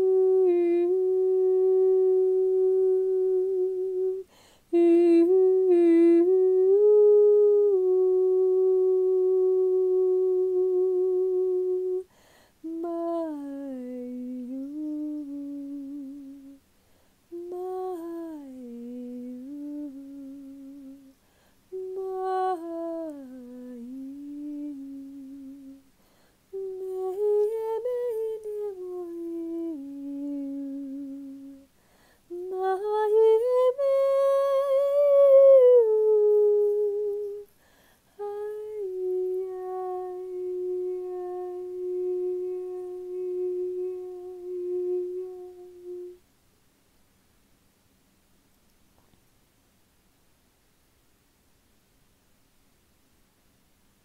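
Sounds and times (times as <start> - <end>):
woman humming long notes: 0.0 - 16.6, 17.3 - 25.9, 26.5 - 31.7, 32.3 - 37.5, 38.2 - 46.2
breaths: 4.3 - 4.7, 12.1 - 12.6, 16.7 - 17.3, 21.2 - 21.7, 25.9 - 26.5, 31.7 - 32.3, 37.5 - 38.2.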